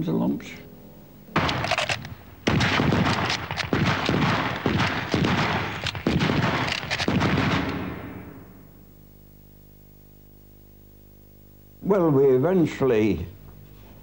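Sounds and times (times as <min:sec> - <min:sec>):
rapid gunfire: 0:01.4 - 0:08.4.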